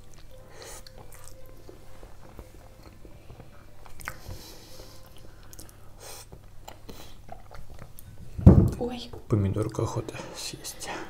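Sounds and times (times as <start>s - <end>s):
close chewing with mouth clicks: 0.0s - 1.6s, 3.8s - 8.1s.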